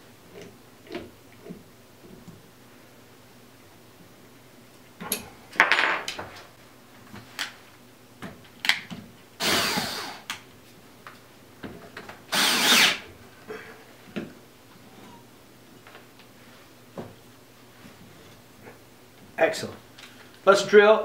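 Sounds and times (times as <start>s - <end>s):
cordless drill motor: 9.4s - 10.3s, 12.3s - 13.0s.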